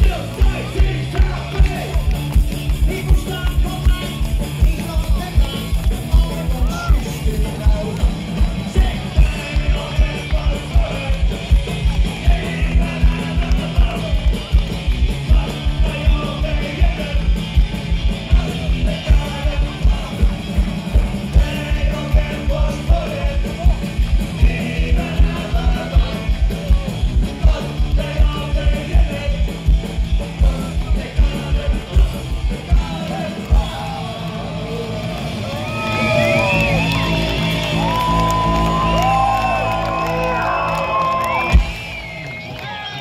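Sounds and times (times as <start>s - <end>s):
person singing: 0.0s - 17.4s
crowd yelling and whooping: 0.0s - 17.5s, 32.6s - 43.0s
drum beat: 0.0s - 34.4s
electric guitars: 0.0s - 43.0s
punk rock band playing live: 0.0s - 43.0s.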